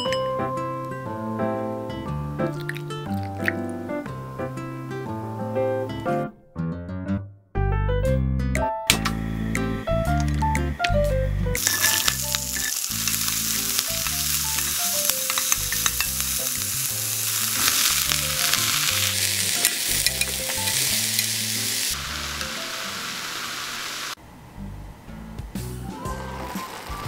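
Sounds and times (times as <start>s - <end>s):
soft piano background music: 0.0s - 6.4s, 7.6s - 23.2s
vegetables sizzling in oil: 11.6s - 24.2s, 26.2s - 27.0s.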